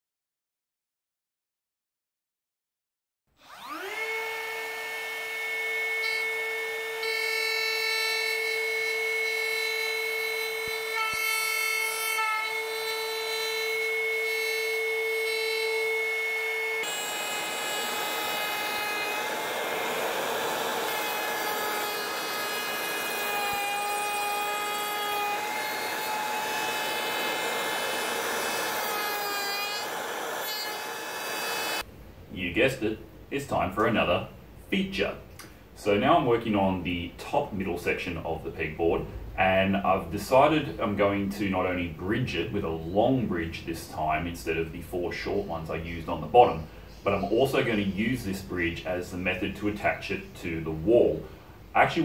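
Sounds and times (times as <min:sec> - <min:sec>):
router cutting wood: 0:03.4 - 0:31.9
router whining: 0:03.4 - 0:31.9.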